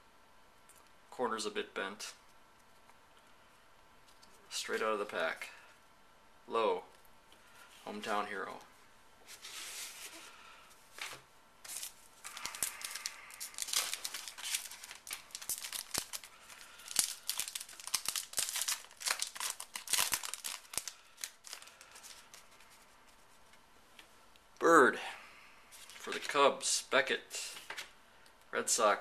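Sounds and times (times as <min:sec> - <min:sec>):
wrapper tearing and crinkling: 0:11.7 - 0:22.8.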